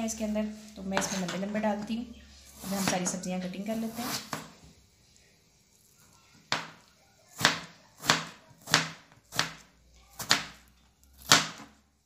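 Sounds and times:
knife cutting on plastic board: 2.6s - 3.1s, 3.8s - 4.5s.

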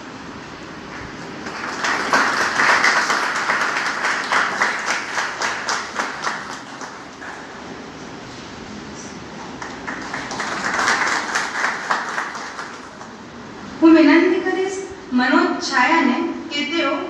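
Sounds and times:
audience applauding: 0.9s - 7.9s, 9.3s - 13.2s.

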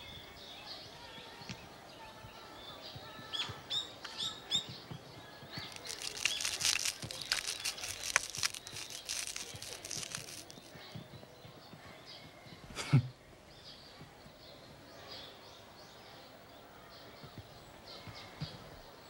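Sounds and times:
food crackling crushed in fist: 5.6s - 10.7s
crumbs pattering down: 5.6s - 10.8s
small bird chirping: 5.6s - 10.8s.

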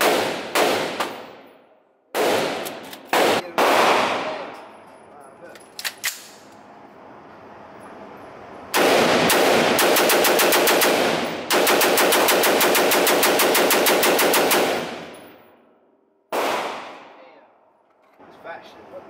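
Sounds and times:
rifle rapid fire: 0.0s - 1.5s, 2.1s - 4.5s, 8.7s - 15.3s, 16.3s - 17.2s.

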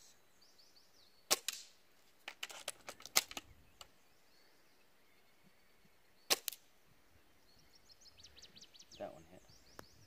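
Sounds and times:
airsoft rifle shot: 1.3s - 1.7s, 6.3s - 6.6s
rifle bolt clicks and snaps: 2.3s - 3.9s.

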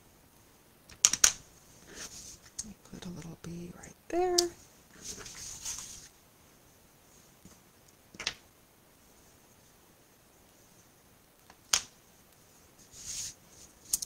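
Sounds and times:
card rustling: 5.0s - 6.1s.

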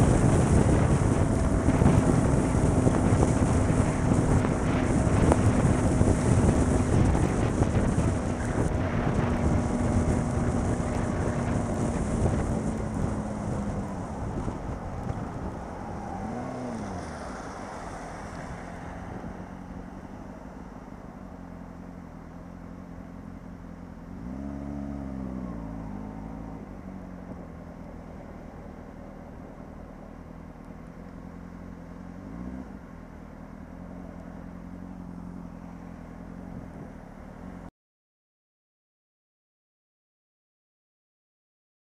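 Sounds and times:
wind rush on microphone: 0.0s - 20.3s
motorcycle engine revving: 0.0s - 27.8s.

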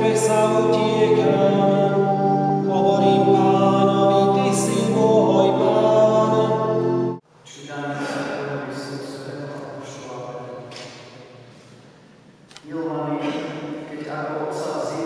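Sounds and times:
electronic organ chords: 0.0s - 7.2s
person singing: 0.0s - 7.2s.

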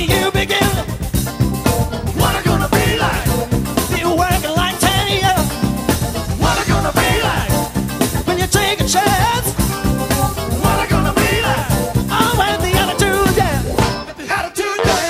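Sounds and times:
person singing: 0.0s - 1.0s, 2.0s - 5.6s, 6.4s - 7.7s, 10.5s - 15.0s
funk band playing: 0.0s - 15.0s
saxophone horn section: 10.6s - 15.0s.

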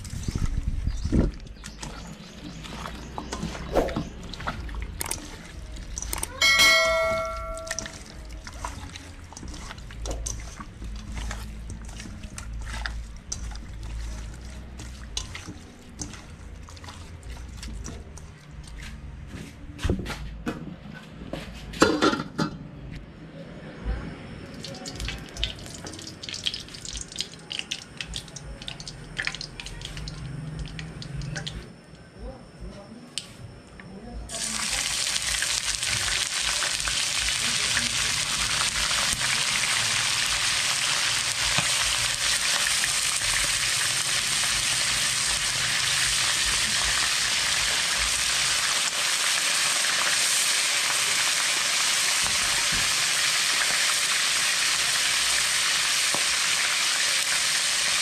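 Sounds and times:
wet squelching of chicken mixed: 0.0s - 6.4s, 7.8s - 19.3s.

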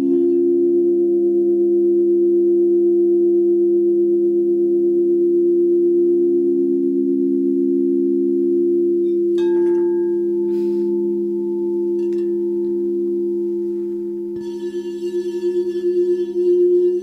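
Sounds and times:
singing bowls ringing: 0.0s - 1.0s, 8.9s - 17.0s.

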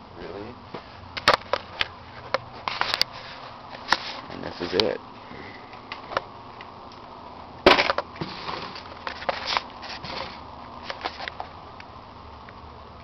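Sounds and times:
clicks and rustles: 1.2s - 4.9s, 7.7s - 11.9s.

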